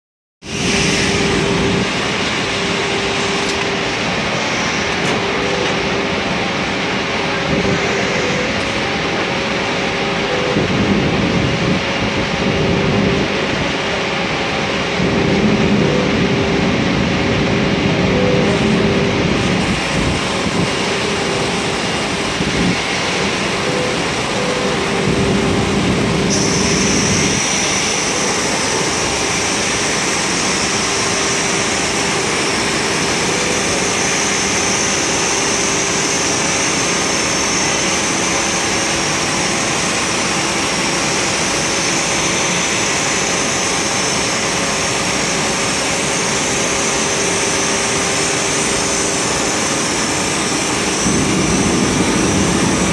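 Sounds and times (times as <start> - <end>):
grinding machine hum: 0.4 - 52.9
high steady whine: 0.4 - 52.9.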